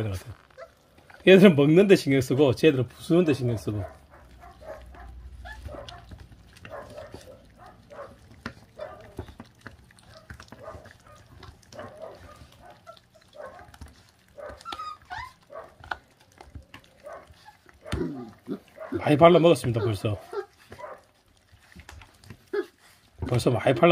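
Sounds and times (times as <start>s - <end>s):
puppies chewing meat: 0.0s - 23.9s
puppies grunting and squeaking: 0.0s - 23.9s
teeth clicking: 3.8s - 19.0s.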